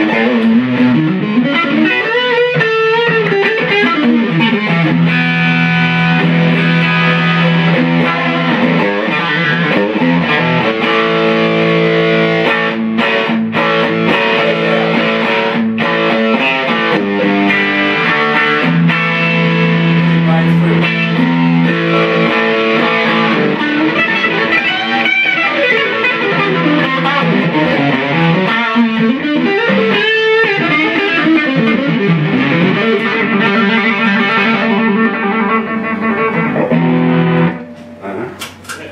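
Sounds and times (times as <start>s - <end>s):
electric guitar lead lines: 0.0s - 38.9s.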